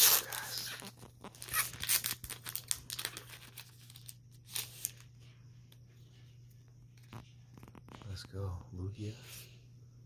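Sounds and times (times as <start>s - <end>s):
foil wrapper crinkling and tearing: 0.0s - 5.1s
cards rustling: 0.0s - 5.2s.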